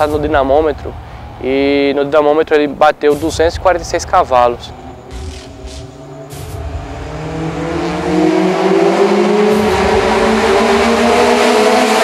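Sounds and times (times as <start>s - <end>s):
car engine accelerating: 3.9s - 12.0s.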